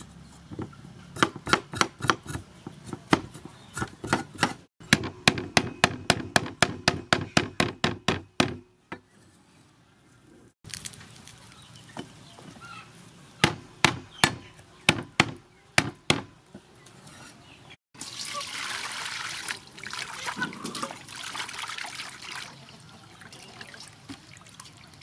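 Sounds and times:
cleaver chopping on wooden board: 1.2 - 8.6.

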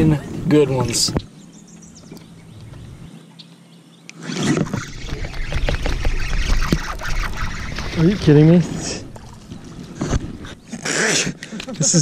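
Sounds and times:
water splashing: 4.3 - 11.4.

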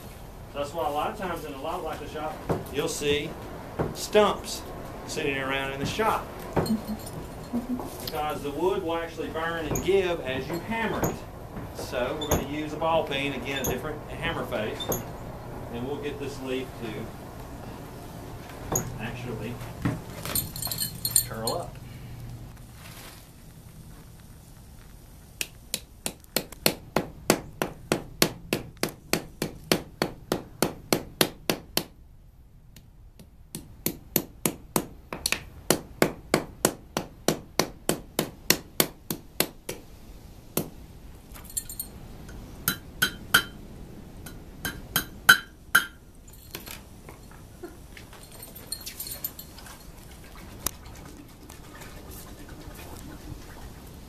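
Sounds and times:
hammer beating hot iron on wood: 3.8 - 4.1, 9.6 - 12.8, 25.4 - 32.0, 33.2 - 39.8, 40.6 - 40.8, 42.6 - 43.6, 44.2 - 46.0
light metal clinks: 6.6 - 8.1, 20.2 - 21.9, 41.3 - 42.4, 45.8 - 50.3.

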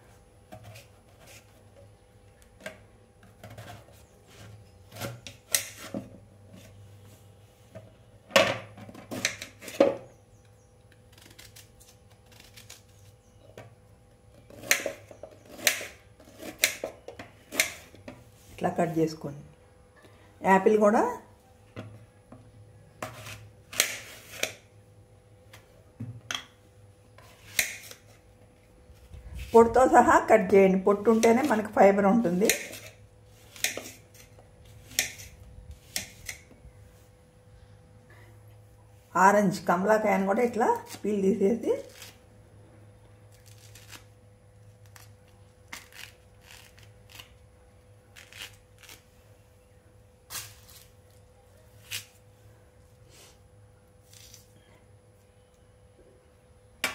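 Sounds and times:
orange peel tearing: 10.9 - 13.3, 43.3 - 49.2, 54.0 - 54.6
knife slicing apple: 14.4 - 18.0, 23.0 - 24.7, 30.9 - 36.5.

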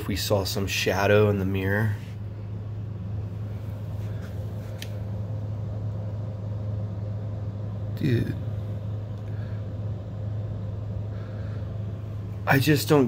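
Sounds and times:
low background hum: 0.0 - 13.0
faint click: 4.8 - 5.0.

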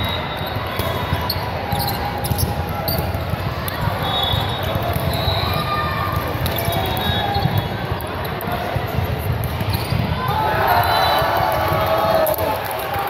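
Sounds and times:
balls thumping on court floor: 0.6 - 10.9.

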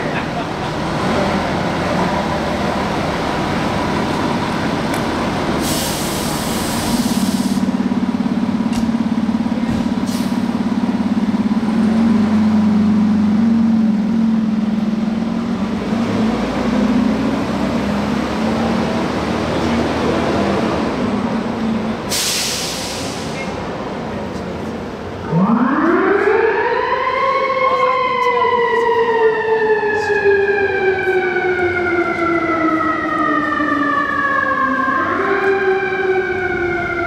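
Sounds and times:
fire engine diesel engine running: 0.0 - 25.5
air brakes hissing: 5.6 - 7.7, 10.0 - 10.5, 22.1 - 23.6.

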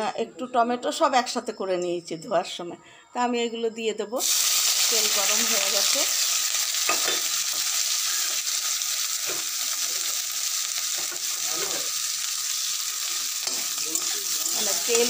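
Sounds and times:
vegetables sizzling in hot oil: 4.2 - 15.0
spatula stirring in a pan: 9.2 - 15.0.

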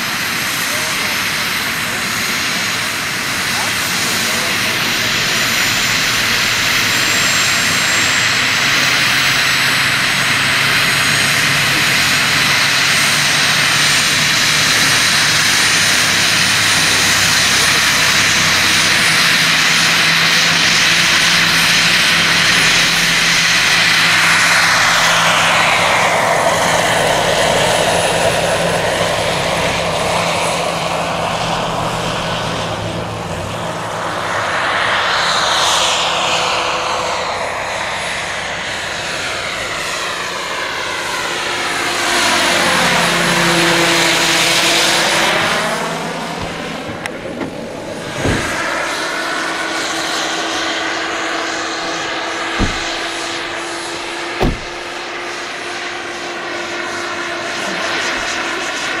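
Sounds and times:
model helicopter rotor whine: 0.0 - 59.0.

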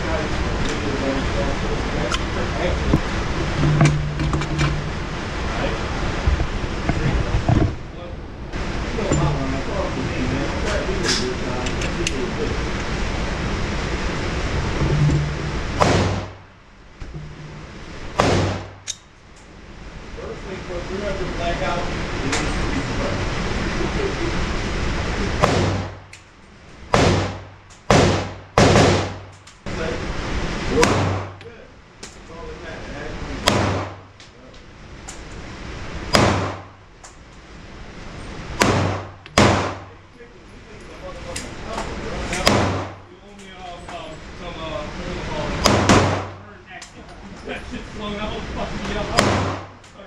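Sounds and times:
steady hiss: 0.0 - 50.0
gunshots ringing: 15.1 - 16.4, 18.2 - 18.8, 25.4 - 26.0, 26.9 - 29.2, 30.8 - 31.4, 33.4 - 34.0, 36.1 - 36.7, 38.6 - 39.9, 42.4 - 43.0, 45.6 - 46.4, 49.1 - 49.7
handgun shots with echo: 15.8 - 16.2.

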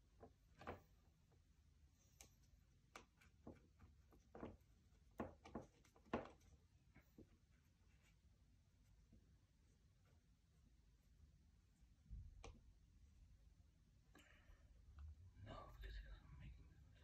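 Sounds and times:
faint light taps and clicks: 12.1 - 12.7.

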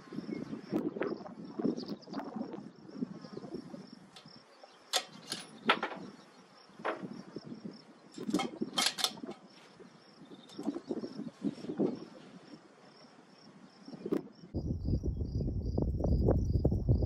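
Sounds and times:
insects buzzing: 0.0 - 17.0
sharp clicks: 4.1 - 6.2, 8.1 - 9.6.

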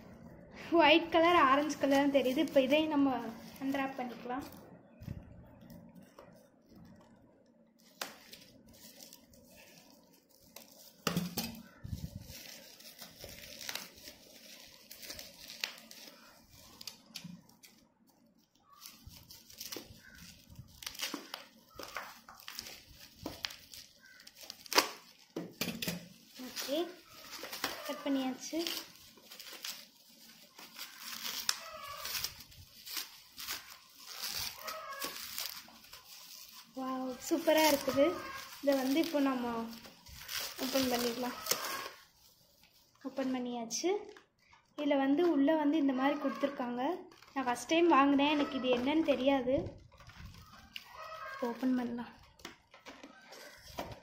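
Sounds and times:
bubble wrap crinkling: 0.1 - 54.0
scissors cutting: 40.2 - 42.0.

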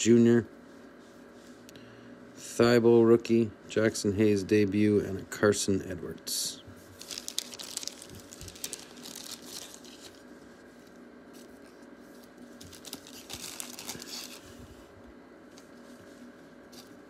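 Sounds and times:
plastic sleeves crinkling: 6.8 - 14.8.

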